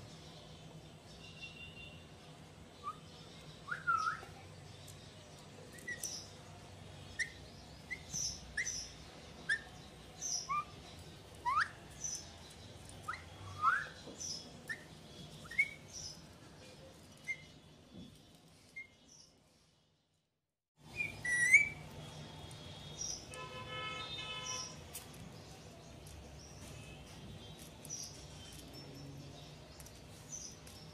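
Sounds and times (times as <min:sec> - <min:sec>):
parakeet chirping whistles: 0:20.9 - 0:21.8.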